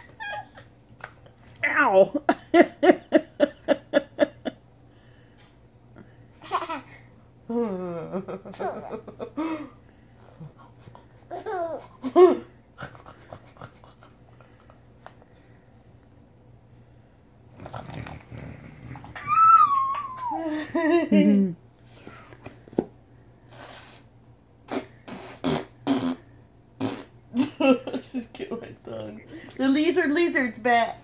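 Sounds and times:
baby squealing: 0:19.2 - 0:20.4.

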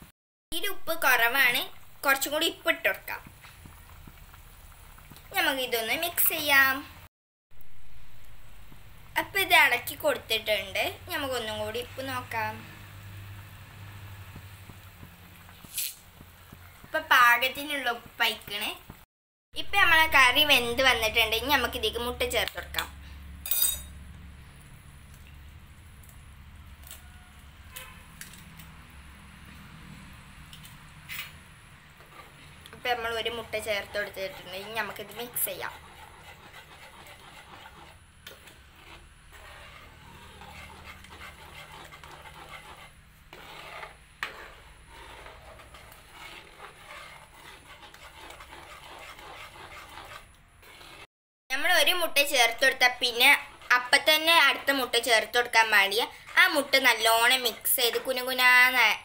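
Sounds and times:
spoon scraping in a pan: 0:20.6 - 0:24.0, 0:30.6 - 0:51.1, 0:51.8 - 0:58.8.

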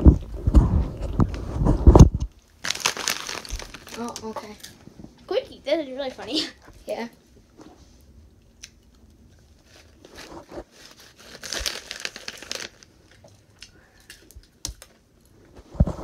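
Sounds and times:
foil snack bag crinkling: 0:02.5 - 0:04.7, 0:09.6 - 0:15.0.

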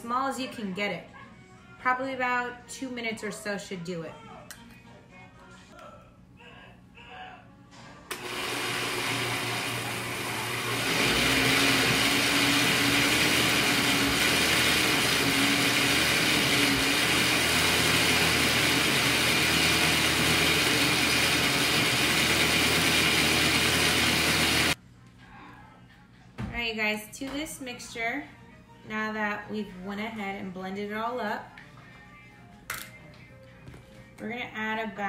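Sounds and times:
blender motor grinding: 0:08.1 - 0:24.8.

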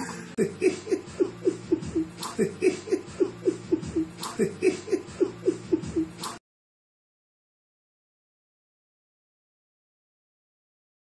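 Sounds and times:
rhythmic laughter: 0:00.0 - 0:06.4.

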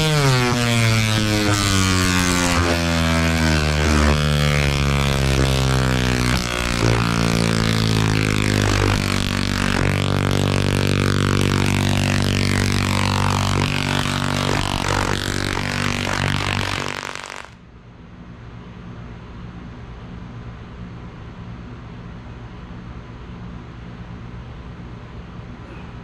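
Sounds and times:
tesla coil harsh buzz: 0:00.0 - 0:17.6
crackling hiss: 0:02.4 - 0:17.6.

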